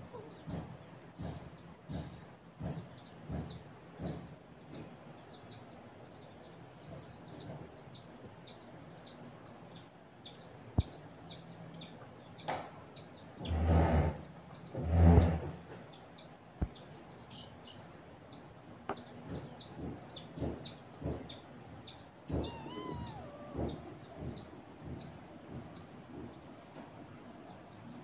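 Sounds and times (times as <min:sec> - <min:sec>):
sharp knocks: 0:00.4 - 0:05.0, 0:18.9 - 0:27.0
kittens scuffling: 0:22.1 - 0:27.1.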